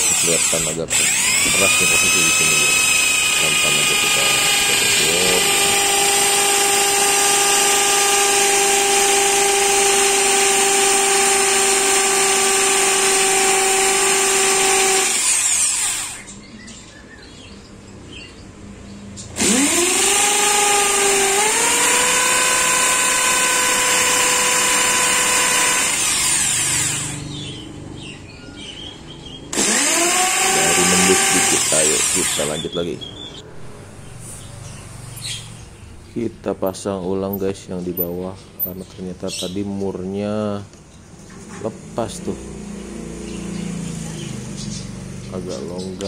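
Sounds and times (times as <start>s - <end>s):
electric drill whining: 0.0s - 16.3s, 19.4s - 27.6s, 29.5s - 32.7s.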